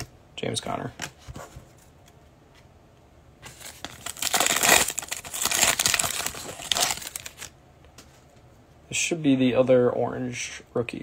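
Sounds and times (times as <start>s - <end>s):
foil wrapper tearing and crinkling: 3.5s - 7.5s.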